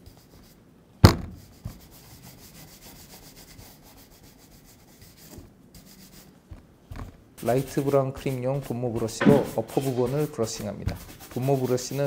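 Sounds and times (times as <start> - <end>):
sharp knock: 1.0 - 1.4, 9.2 - 9.9
brush scrubbing leather boot: 7.4 - 12.0.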